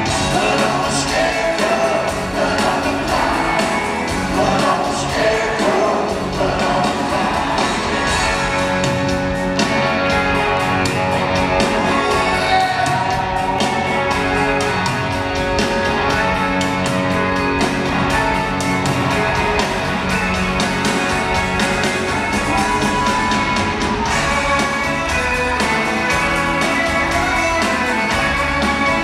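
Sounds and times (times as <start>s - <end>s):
drum beat: 0.0s - 29.0s
electric guitars: 0.0s - 29.0s.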